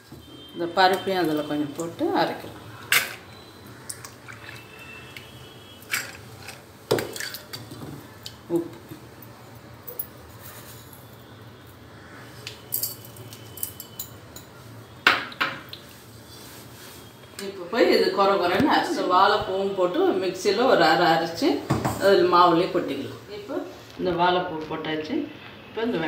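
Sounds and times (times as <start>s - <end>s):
steel utensils clinking on a jar: 5.9s - 6.6s, 12.7s - 14.5s.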